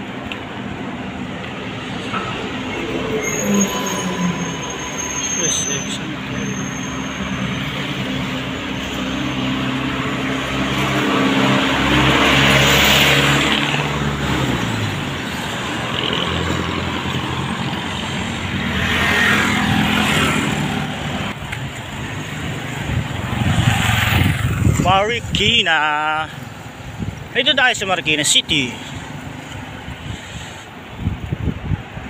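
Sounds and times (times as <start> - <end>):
road traffic passing: 0.0 - 32.0
vehicle passing loudly: 6.1 - 21.4, 22.0 - 26.2.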